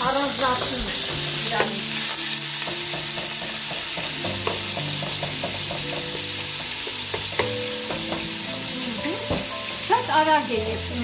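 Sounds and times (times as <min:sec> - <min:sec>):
meat sizzling in hot oil: 0:00.0 - 0:11.0
utensil clicking against pan: 0:00.6 - 0:08.3.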